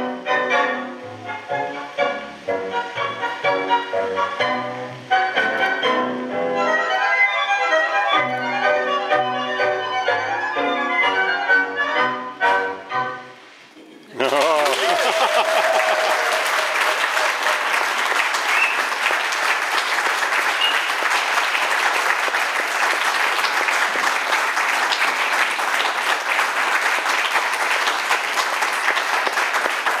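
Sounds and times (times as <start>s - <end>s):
tango music: 0.0s - 13.8s, 17.2s - 30.0s
audience clapping: 14.0s - 30.0s.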